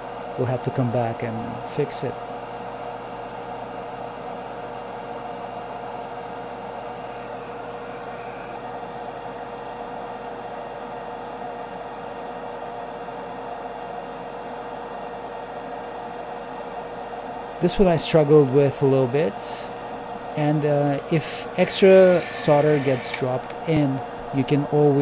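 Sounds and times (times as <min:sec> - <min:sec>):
small fan whirring: 0:02.2 - 0:10.7, 0:19.4 - 0:24.9.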